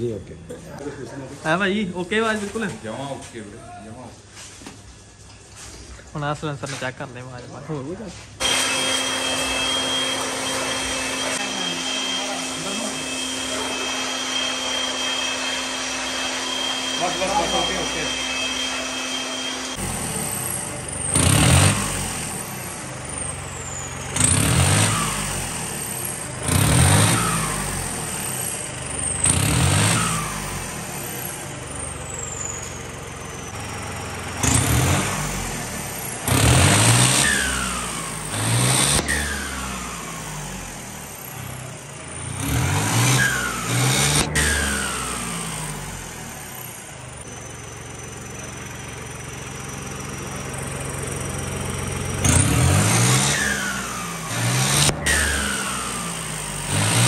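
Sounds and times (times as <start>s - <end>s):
engine idling whine: 8.4s - 57.0s
tractor engine revving: 8.4s - 57.0s
whistle sliding down: 42.7s - 45.4s.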